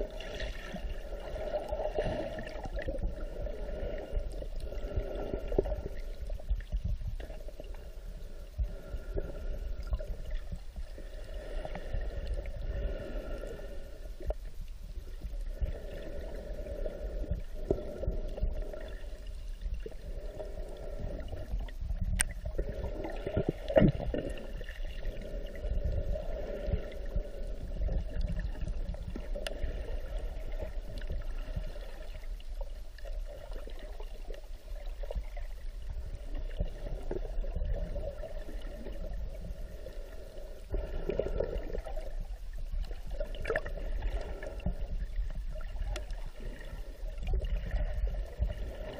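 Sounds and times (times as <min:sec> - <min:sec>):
muffled underwater rumble: 0:00.0 - 0:48.9.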